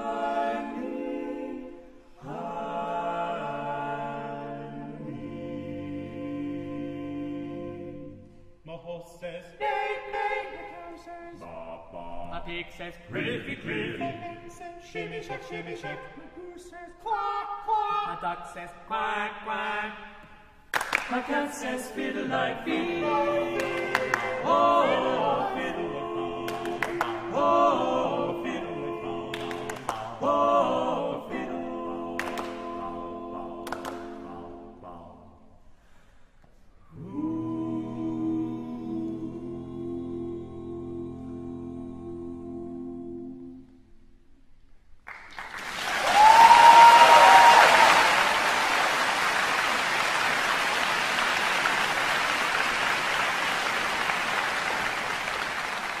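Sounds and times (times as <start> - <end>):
male a cappella group singing: 0.0 - 20.2, 21.0 - 35.6, 36.9 - 43.7
audience applauding: 23.6 - 24.5, 45.1 - 56.0.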